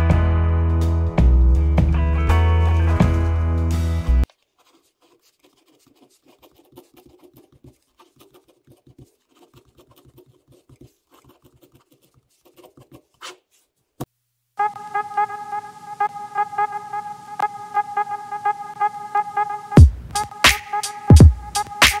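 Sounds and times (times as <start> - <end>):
pen scratching on paper: 4.2 - 13.7.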